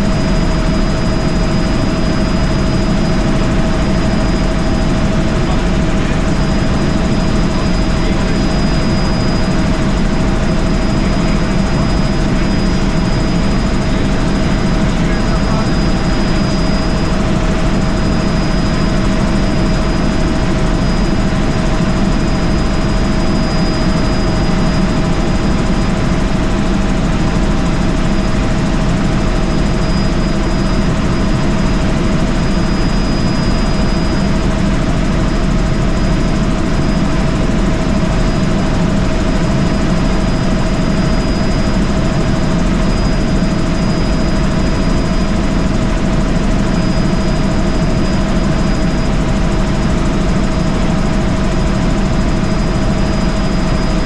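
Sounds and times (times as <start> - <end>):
helicopter engine and rotor drone: 0.0 - 54.0
thin steady whine: 0.0 - 54.0.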